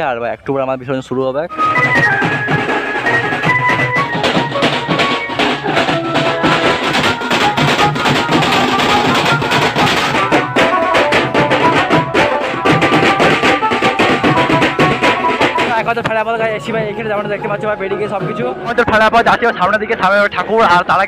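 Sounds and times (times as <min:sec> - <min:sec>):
snare and bass drums beating: 0:01.5 - 0:19.4
melody over drums: 0:01.5 - 0:20.7.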